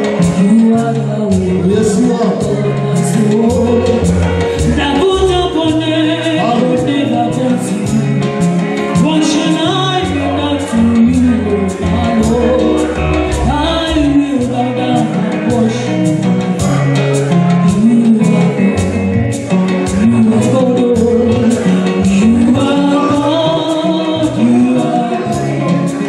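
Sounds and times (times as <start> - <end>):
upbeat music with singing: 0.0 - 26.0.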